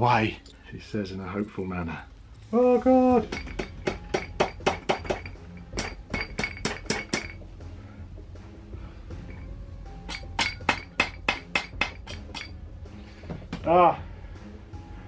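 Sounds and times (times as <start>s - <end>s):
sharp metallic clinks: 9.2s - 12.6s.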